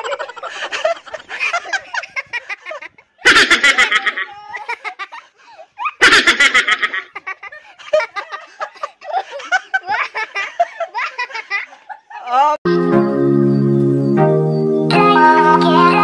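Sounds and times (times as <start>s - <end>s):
people laughing: 0.0s - 12.6s.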